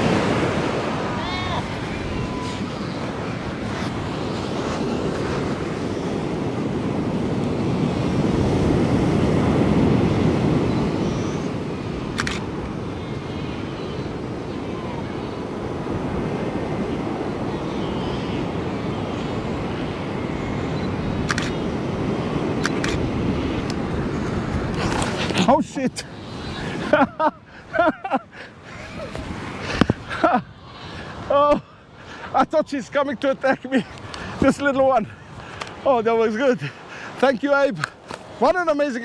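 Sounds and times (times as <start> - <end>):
wind on microphone: 0.0 - 27.9
ocean surf breaking: 0.0 - 39.0
sharp click: 21.2 - 21.6, 22.6 - 23.0.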